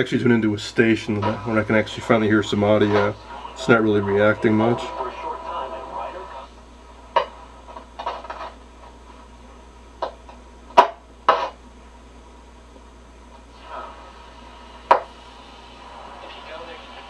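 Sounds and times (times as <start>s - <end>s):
radio static crackles: 0.0s - 9.3s, 10.0s - 11.6s, 13.3s - 17.0s
low hum: 0.0s - 16.3s
sharp pops: 14.9s - 15.1s.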